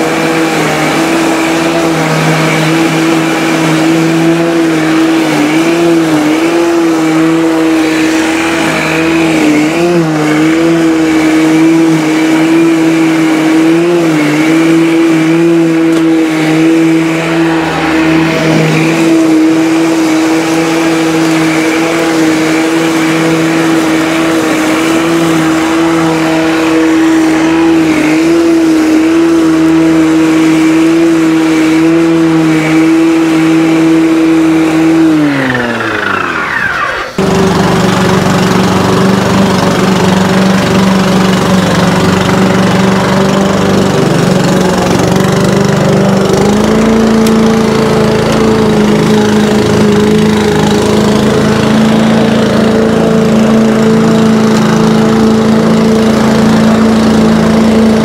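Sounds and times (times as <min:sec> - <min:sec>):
electric lawn mower whine: 0:00.0 - 0:58.0.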